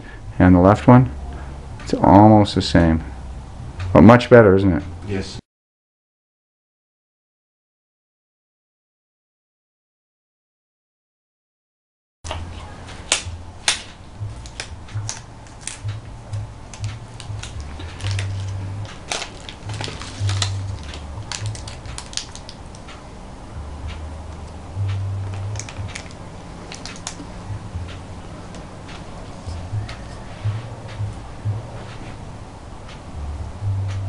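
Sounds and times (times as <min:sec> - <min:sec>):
low uneven hum: 0:00.0 - 0:05.4, 0:12.3 - 0:34.0
latex gloves pulled on: 0:17.2 - 0:22.5
paper wrappers crinkling: 0:17.2 - 0:22.8, 0:25.3 - 0:27.2
sharp irregular clicks: 0:18.9 - 0:23.0, 0:23.9 - 0:27.3.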